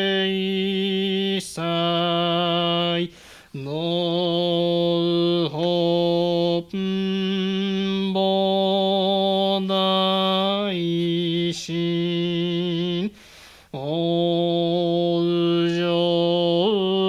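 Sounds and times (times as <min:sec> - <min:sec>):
man chanting: 0:00.0 - 0:13.2, 0:13.8 - 0:17.0.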